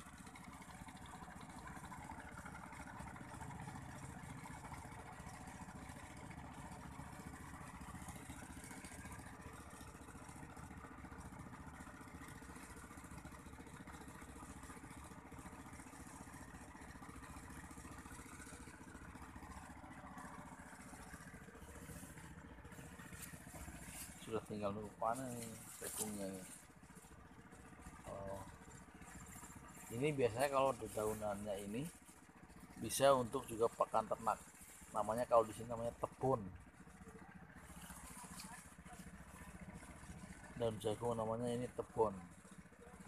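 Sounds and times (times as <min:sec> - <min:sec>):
faint distant engine running: 0:00.0 - 0:43.0.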